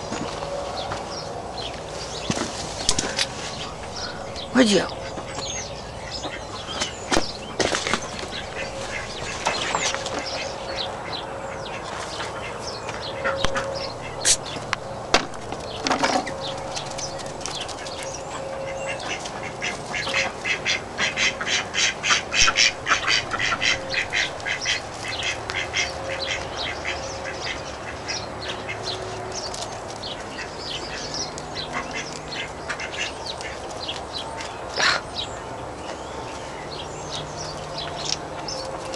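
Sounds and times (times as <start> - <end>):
ducks quacking: 2.8 - 28.9, 30.1 - 33.8.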